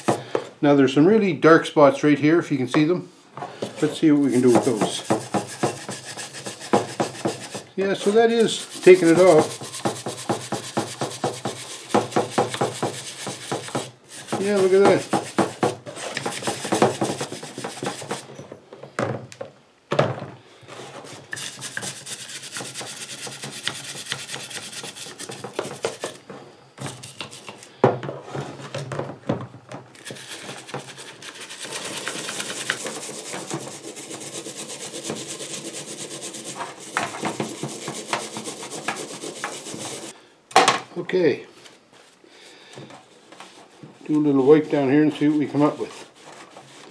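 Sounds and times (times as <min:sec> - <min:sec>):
wire brush scrubbing metal: 0:03.8 - 0:18.3, 0:21.4 - 0:26.2, 0:30.0 - 0:40.1, 0:44.2 - 0:46.9.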